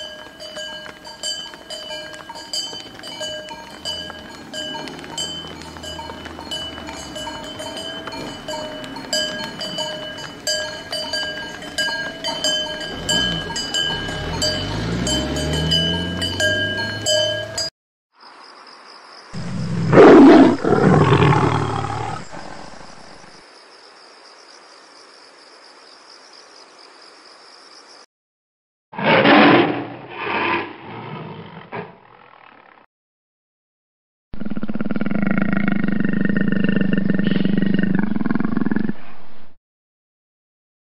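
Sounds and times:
cowbells clanking: 0.0 - 17.7
hooves clopping on asphalt: 0.0 - 17.7
loud roar: 19.4 - 23.2
long low animal call: 34.4 - 39.0.

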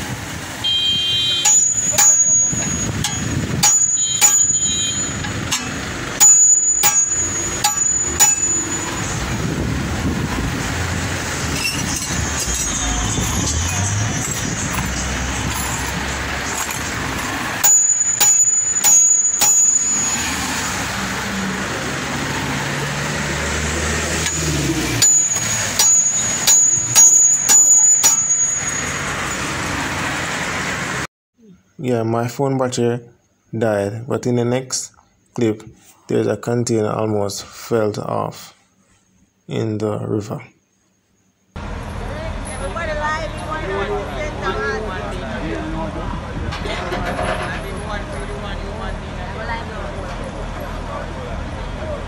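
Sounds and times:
hammer striking steel: 1.4 - 9.4, 11.6 - 20.9, 23.9 - 29.4.

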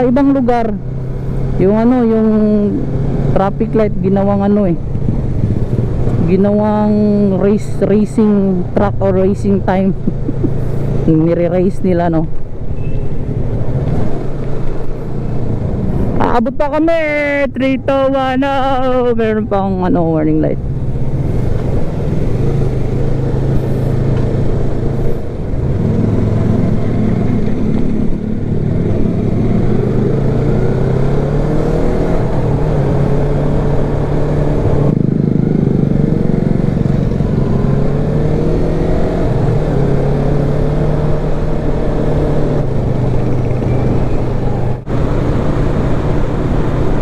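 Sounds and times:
wind and road noise: 0.0 - 47.0
motorcycle engine accelerating: 9.9 - 11.1, 20.6 - 47.0.

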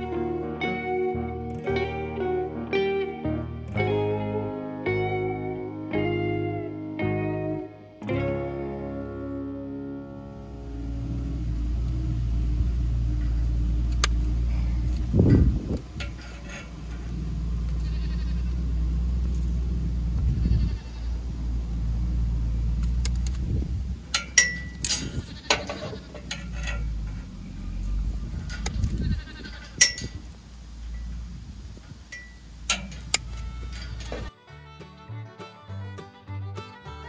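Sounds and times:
steady low rumble: 8.2 - 34.3
farm animals calling: 16.4 - 19.0, 20.0 - 22.6, 25.0 - 30.2.

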